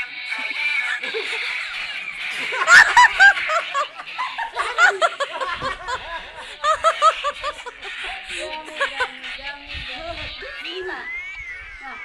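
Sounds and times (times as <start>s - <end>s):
people laughing: 0.2s - 9.7s.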